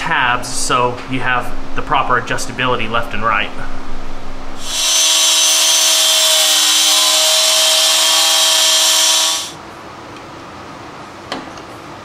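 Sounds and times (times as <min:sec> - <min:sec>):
angle grinder cutting steel: 0:04.6 - 0:09.6.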